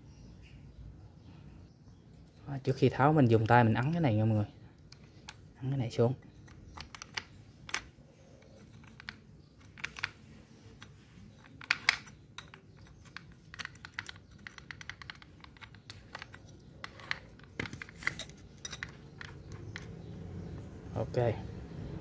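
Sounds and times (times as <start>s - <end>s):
spanner clicking on metal nut: 6.4s - 20.1s.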